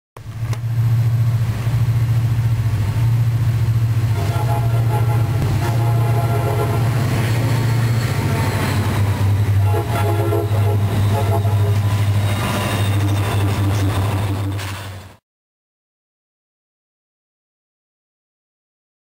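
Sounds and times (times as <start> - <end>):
locomotive engine rumble: 0.2 - 15.2
train horn: 4.1 - 7.2, 9.5 - 13.7.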